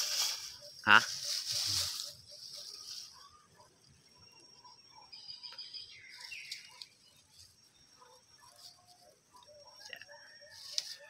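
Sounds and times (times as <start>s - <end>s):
rustling among dry leaves: 0.0s - 3.3s.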